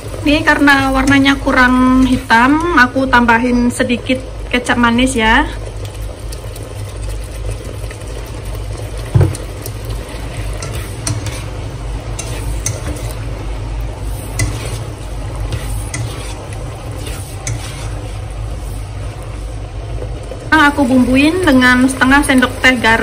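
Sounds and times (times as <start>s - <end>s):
sauce sizzling: 0.0s - 23.0s
spatula scraping a wok: 10.1s - 13.3s, 14.0s - 19.2s
spatula clicking against pan: 12.2s - 13.0s.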